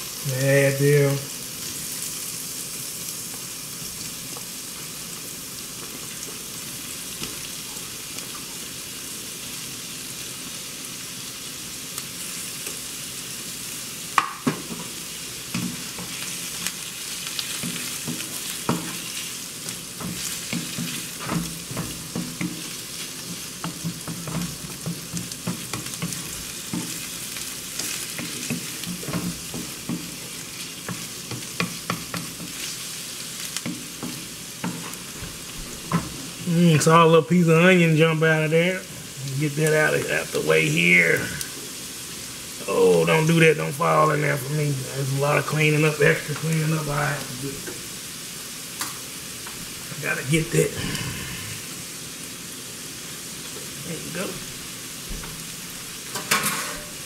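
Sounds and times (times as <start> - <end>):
shrimp sizzling in oil: 0.0 - 57.0
wooden spoon scraping a pan: 15.5 - 36.4.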